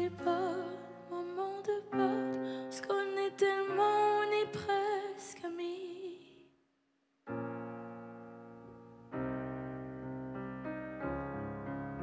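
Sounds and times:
keyboard piano chord: 0.0s - 1.2s
woman singing: 0.0s - 6.4s.

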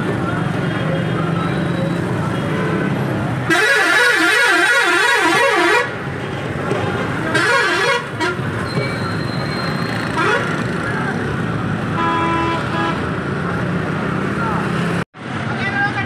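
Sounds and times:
engines and traffic hum: 0.0s - 16.0s
warbling multi-tone bus horn: 3.5s - 6.1s, 7.2s - 8.7s, 10.1s - 10.6s, 11.9s - 13.1s.

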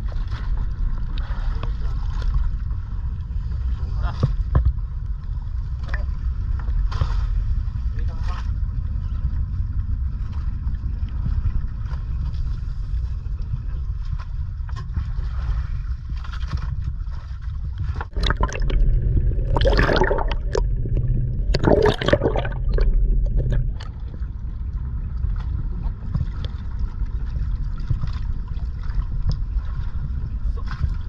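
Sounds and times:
water gurgling and sloshing: 0.0s - 31.0s
wind and waves: 0.0s - 31.0s
water splashing surges: 18.1s - 24.2s.

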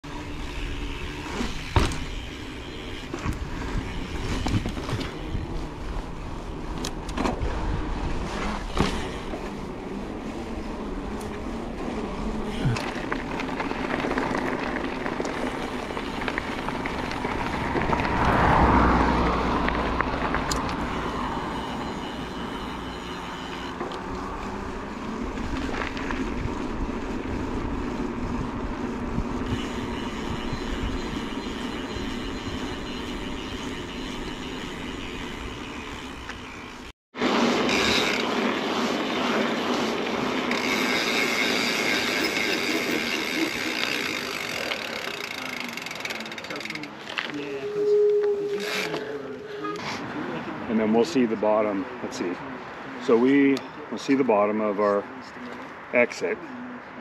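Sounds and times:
tyre and wind rush: 0.1s - 22.7s, 24.2s - 43.1s
bike knocks and rattles: 0.2s - 5.5s, 8.4s - 9.6s.

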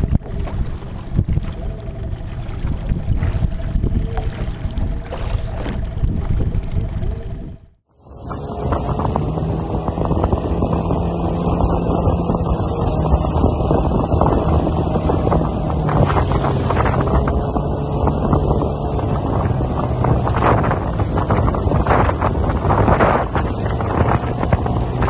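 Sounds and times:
water rushing and splashing: 0.0s - 7.8s
outboard motor running: 0.0s - 25.0s
wind buffeting microphone: 0.0s - 25.0s.

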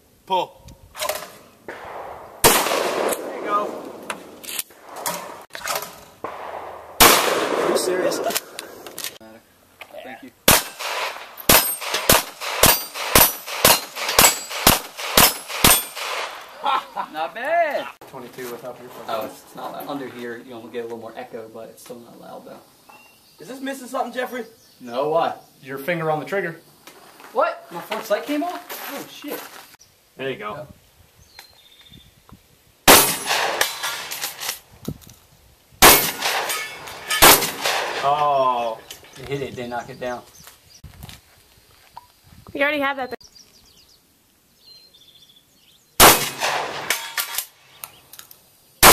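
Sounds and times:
pistol shots: 1.7s - 5.4s, 6.2s - 9.2s, 10.5s - 16.6s, 32.9s - 34.2s, 35.8s - 38.2s, 46.0s - 47.5s
metallic clang of steel plates: 36.0s - 37.4s.

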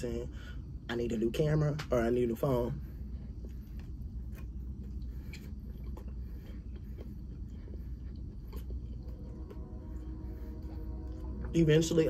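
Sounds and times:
low steady hum: 0.0s - 12.0s
chewing and mouth sounds: 2.8s - 12.0s.

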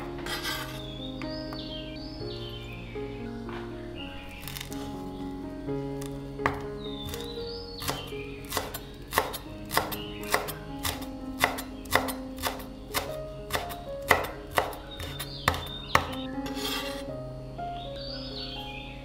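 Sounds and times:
background music: 0.0s - 19.0s
knife chopping on cutting board: 7.8s - 17.0s.

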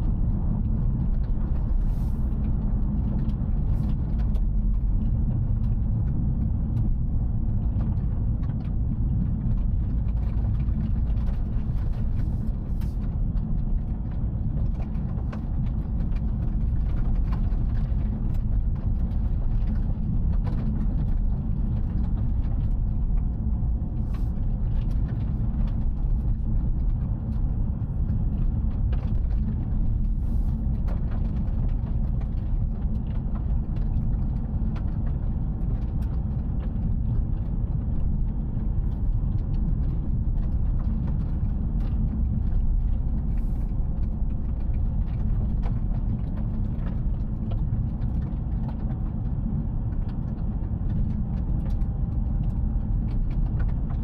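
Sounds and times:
car interior engine and road rumble: 0.0s - 54.0s.

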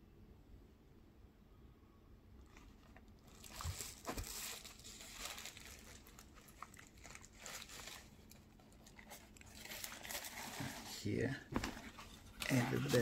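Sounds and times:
tissue paper crumpling: 3.2s - 13.0s.

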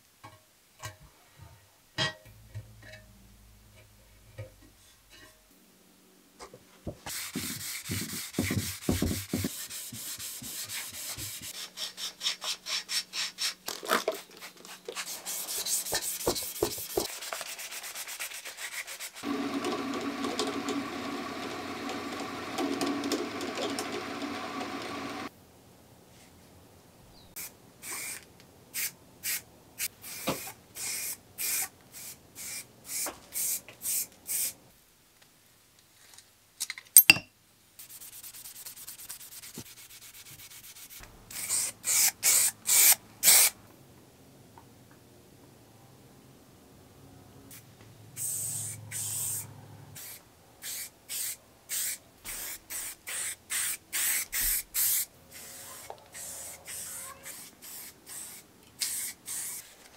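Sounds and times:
sandpaper rubbing on metal tube: 7.1s - 13.6s, 14.2s - 19.2s, 37.8s - 43.6s, 48.2s - 49.4s, 50.0s - 59.9s
drill press buffing wheel whirring: 19.2s - 25.3s
aerosol spray can hissing: 27.4s - 28.2s, 28.8s - 34.6s, 41.3s - 43.6s, 48.2s - 49.4s, 50.0s - 59.7s.

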